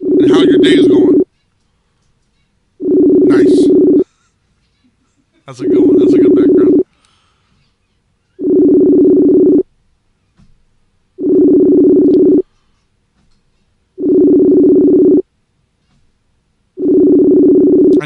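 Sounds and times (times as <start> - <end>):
phone ringback tone: 0.0 - 1.2, 2.8 - 4.0, 5.6 - 6.8, 8.4 - 9.6, 11.2 - 12.4, 14.0 - 15.2, 16.8 - 18.0.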